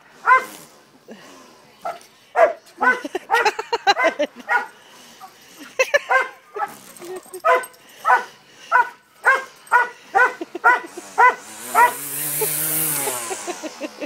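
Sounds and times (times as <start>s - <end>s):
dog barking: 0.2s - 0.6s, 1.8s - 4.8s, 6.0s - 12.0s
weed eater motor whirring: 10.4s - 14.0s.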